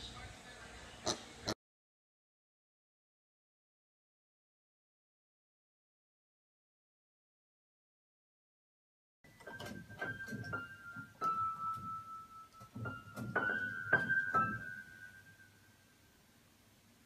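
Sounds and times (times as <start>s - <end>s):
scattered piano notes: 9.3s - 15.6s.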